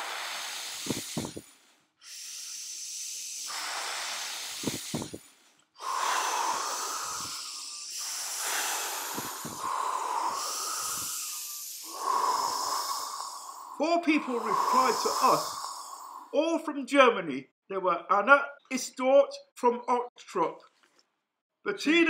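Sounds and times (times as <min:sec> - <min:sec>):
breathy wind-like blowing: 0:00.0 - 0:01.4, 0:03.5 - 0:05.2, 0:05.8 - 0:16.3
air thumps on microphone: 0:00.8 - 0:01.4, 0:04.5 - 0:05.3, 0:09.1 - 0:09.7.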